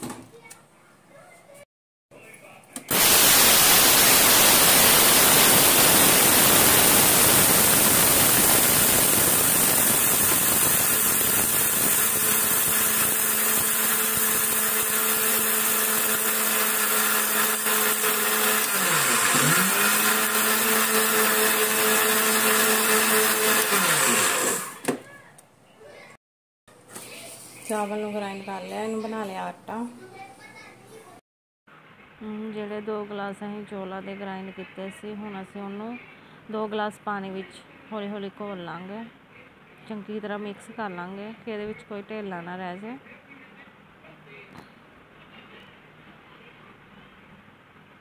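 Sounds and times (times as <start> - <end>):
mixer grinder running: 2.9 - 24.8.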